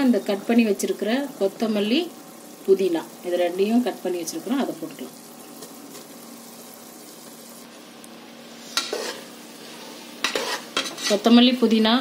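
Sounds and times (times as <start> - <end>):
sauce sizzling in hot oil: 0.0 - 12.0
metal spoon stirring and scraping: 8.7 - 11.3.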